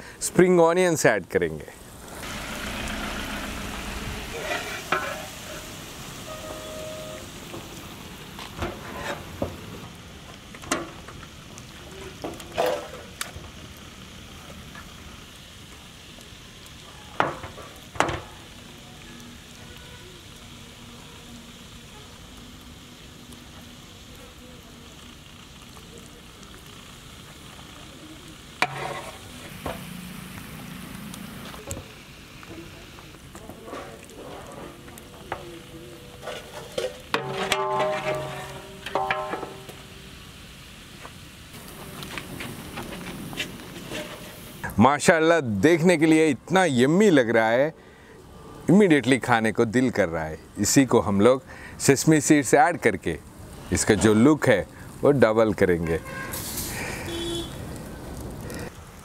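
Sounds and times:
chicken sizzling in a pot: 1.0s - 59.0s
utensil clinking on metal: 36.2s - 39.8s.

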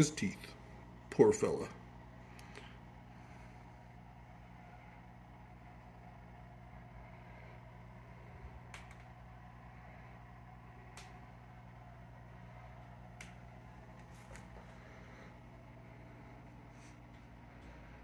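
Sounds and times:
aquarium pump hum: 0.0s - 18.0s
sharp clicks: 8.7s - 9.1s.

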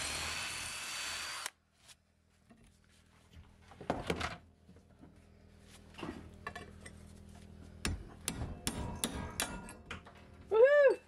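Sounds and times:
hammer striking metal punch: 7.8s - 10.0s.

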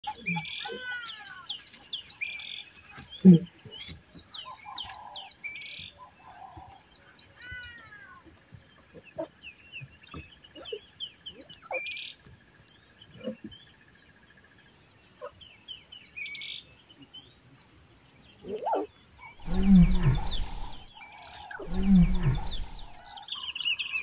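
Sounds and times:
birds chirping and singing: 0.0s - 24.0s
lioness calling: 18.6s - 23.2s.

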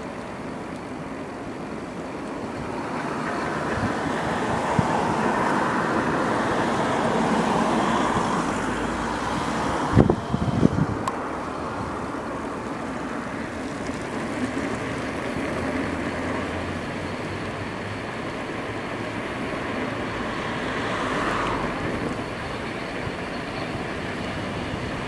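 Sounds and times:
tyre and wind rush: 2.4s - 15.8s.

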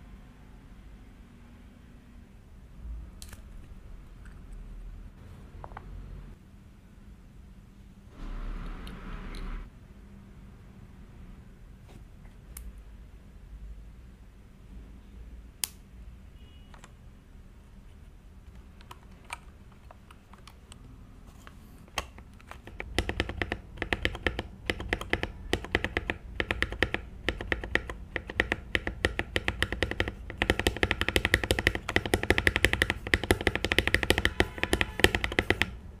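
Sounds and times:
rapid mechanical keyboard typing: 22.5s - 35.8s.

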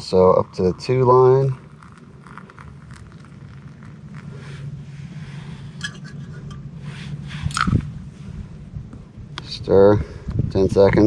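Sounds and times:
hot water pouring: 0.0s - 5.2s
low hum: 0.0s - 10.6s.

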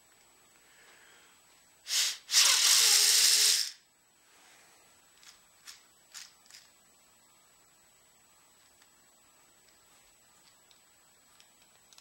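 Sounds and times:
loud hiss: 1.8s - 3.9s.

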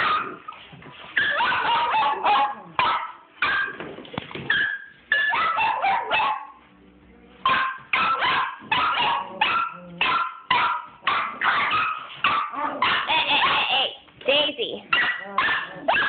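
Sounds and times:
small dog barking: 1.2s - 3.8s, 4.5s - 6.6s, 7.4s - 13.7s, 14.9s - 16.0s.

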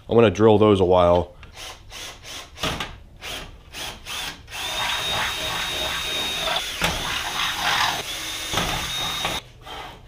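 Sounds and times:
cordless drill whining: 3.2s - 9.4s.

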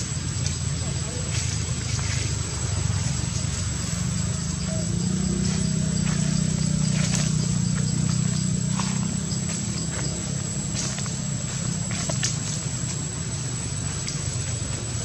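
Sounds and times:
dry leaves crackling underfoot: 0.0s - 15.0s
steady low hum: 0.0s - 15.0s.

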